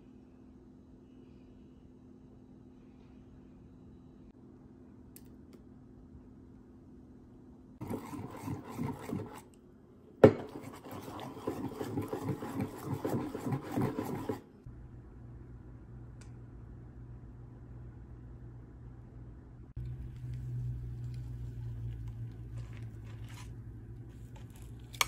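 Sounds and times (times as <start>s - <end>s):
whisk beating batter: 7.8s - 9.5s, 10.2s - 14.6s.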